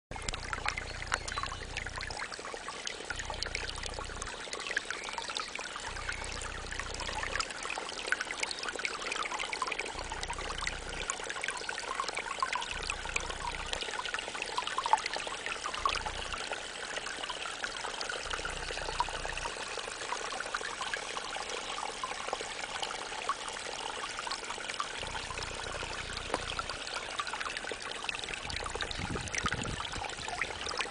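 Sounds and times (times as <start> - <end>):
fountain water trickling and splashing: 0.1 - 30.9
water dripping: 0.1 - 30.9.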